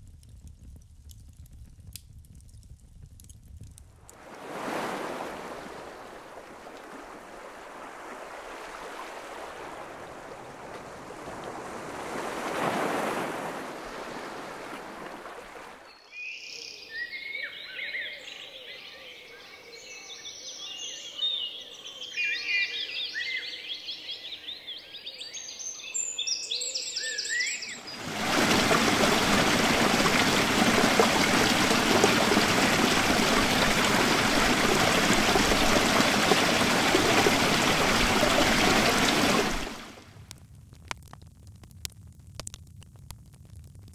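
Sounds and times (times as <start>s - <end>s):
ocean waves washing: 4.2s - 15.8s, 27.8s - 40.1s
songbirds chirping: 15.8s - 39.8s
waterfall pouring into pool: 27.8s - 40.1s.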